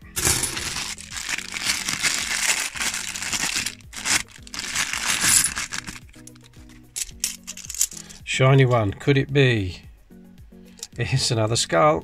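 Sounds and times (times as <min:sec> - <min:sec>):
plastic bag crinkling: 0:00.1 - 0:08.0.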